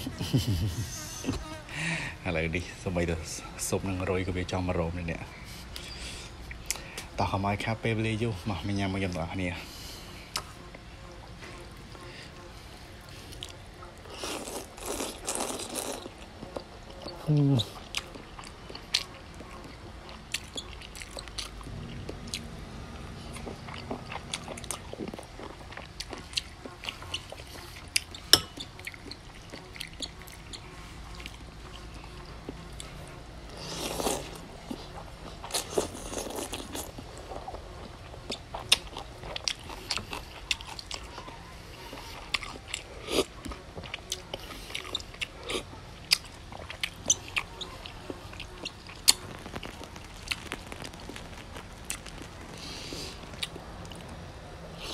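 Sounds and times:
chewing and mouth smacks: 10.3s - 10.5s, 13.3s - 33.0s, 33.7s - 54.2s
slurping noodles: 33.5s - 34.4s.

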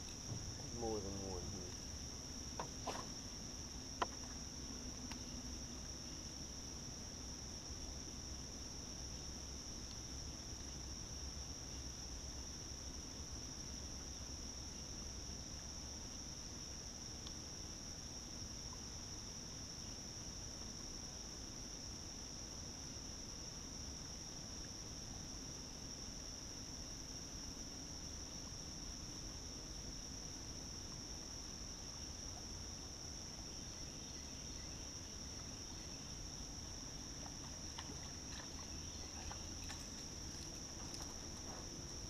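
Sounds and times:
insects droning: 0.0s - 42.0s
faint low rumble: 33.4s - 42.0s.

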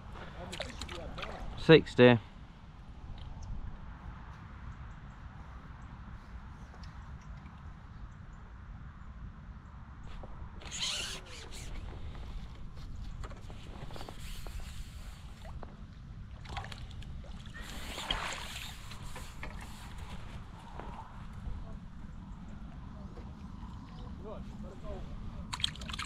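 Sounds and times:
light water splashing: 0.3s - 1.7s, 14.6s - 20.2s, 25.4s - 26.0s
steady low rumble: 19.9s - 25.7s.

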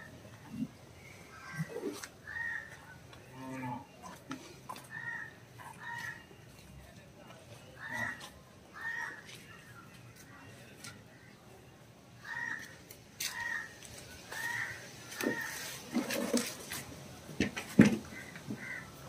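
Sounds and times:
crows cawing: 1.3s - 2.8s, 4.8s - 6.3s, 7.8s - 9.4s, 12.2s - 15.8s, 18.1s - 19.0s.

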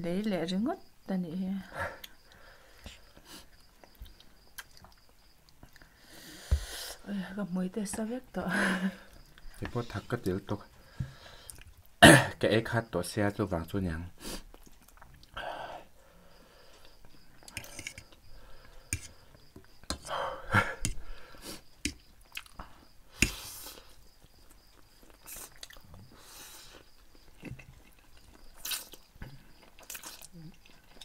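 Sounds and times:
noodles slurped and chewed: 26.6s - 31.0s.

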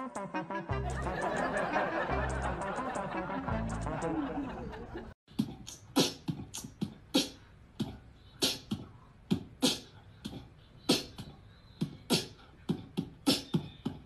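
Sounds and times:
beatboxing: 0.0s - 4.2s, 5.3s - 14.0s.

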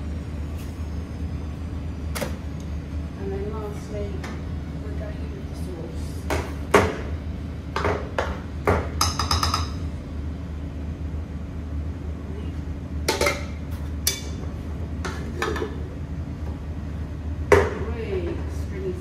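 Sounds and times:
steady low hum: 0.0s - 19.0s
utensils knocking on metal pot: 7.8s - 9.8s, 13.1s - 13.5s.

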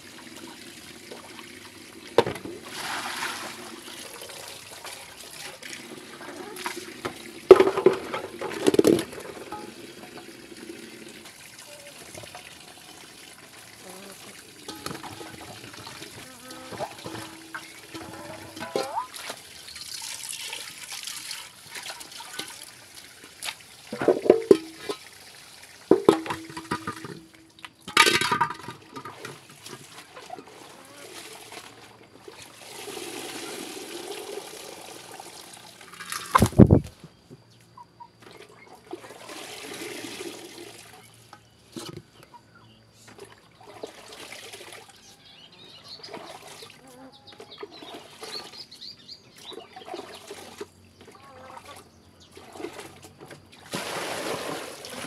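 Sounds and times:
water pouring into metal pot: 0.0s - 22.9s
metal pot clanking: 7.5s - 10.3s, 14.6s - 19.1s, 24.0s - 25.0s, 25.9s - 29.3s.

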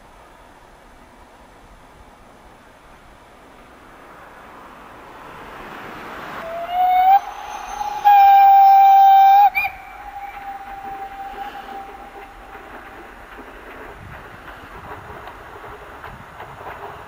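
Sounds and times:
train running noise: 0.0s - 17.0s
steam locomotive whistle: 6.4s - 12.9s.

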